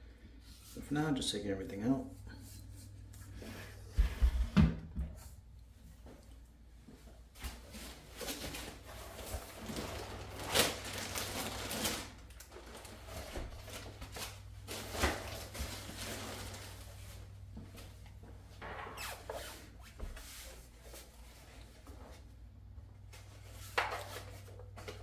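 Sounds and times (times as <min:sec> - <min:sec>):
plastic wrap rustling and crinkling: 0:07.4 - 0:18.0.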